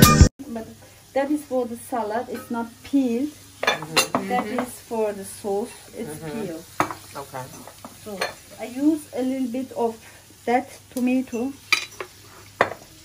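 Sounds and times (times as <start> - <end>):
glass jars clinking: 3.6 - 4.7
indistinct voices: 3.6 - 8.3.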